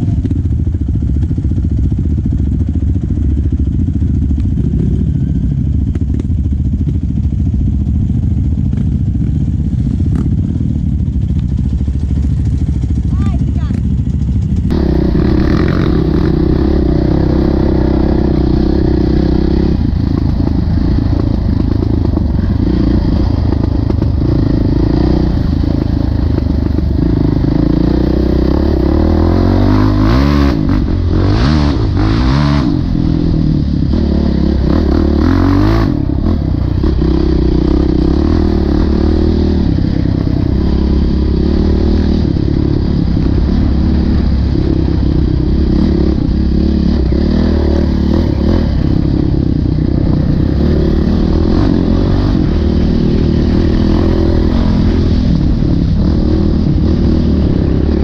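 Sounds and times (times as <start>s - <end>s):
dirt bike engine revving: 11.9s - 58.0s.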